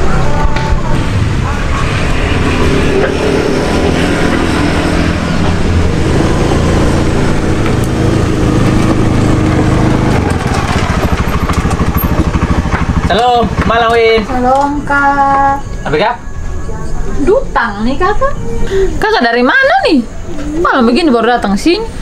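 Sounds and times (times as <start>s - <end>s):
motorcycle engine running and idling: 0.0s - 15.8s.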